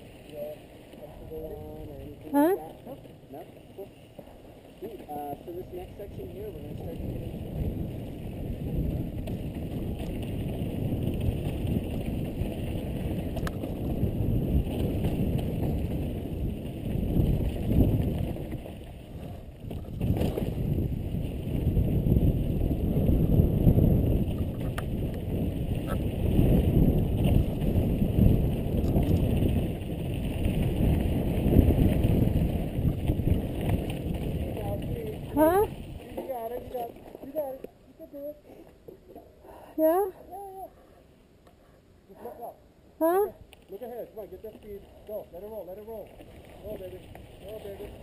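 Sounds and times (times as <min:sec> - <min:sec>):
bike tyres rolling on dirt trail: 0:00.0 - 0:41.5, 0:42.1 - 0:48.0
wind rushing over microphone: 0:05.3 - 0:36.6.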